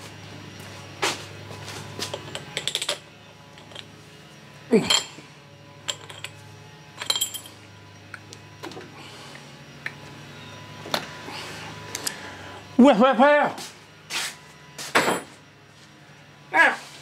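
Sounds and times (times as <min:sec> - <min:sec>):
metal tool clinks: 0:07.0 - 0:07.6.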